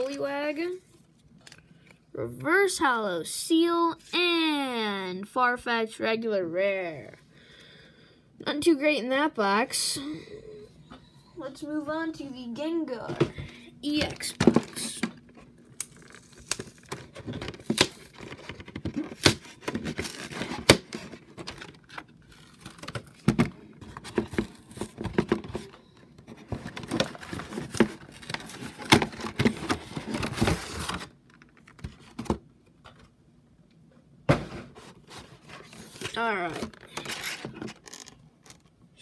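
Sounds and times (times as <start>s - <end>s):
cardboard and plastic crinkling: 13.9s - 33.1s, 34.6s - 38.7s.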